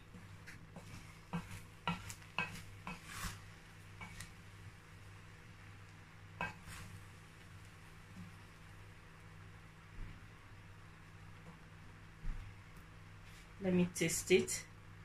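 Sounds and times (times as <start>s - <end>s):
wooden spoon stirring rice: 0.0s - 8.8s
spoon scraping and knocking pot: 0.8s - 3.4s.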